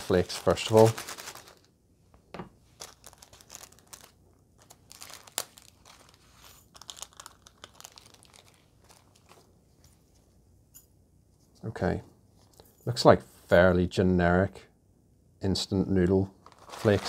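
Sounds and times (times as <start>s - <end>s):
dried flakes crackling: 0.0s - 1.7s, 2.7s - 9.5s, 16.4s - 17.0s
plastic sachet crinkling and tearing: 0.0s - 1.7s, 2.7s - 9.5s, 16.4s - 17.0s.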